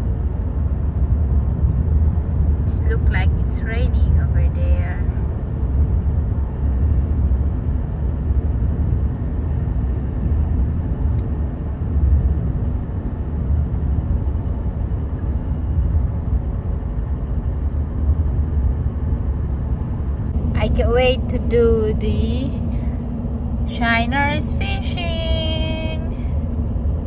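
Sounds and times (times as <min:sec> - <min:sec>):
truck road and engine rumble: 0:00.0 - 0:27.0.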